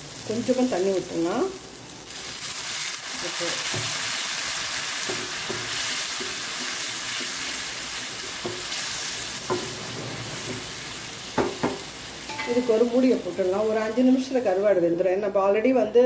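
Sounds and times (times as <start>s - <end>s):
food sizzling in a pan: 0.0s - 15.3s
spoon knocking against pan: 9.5s - 10.6s, 11.4s - 12.8s.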